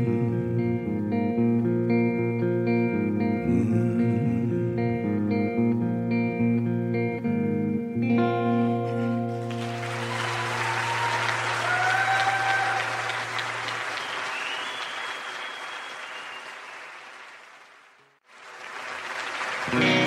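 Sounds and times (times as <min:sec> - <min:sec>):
audience applauding: 0:09.0 - 0:20.0.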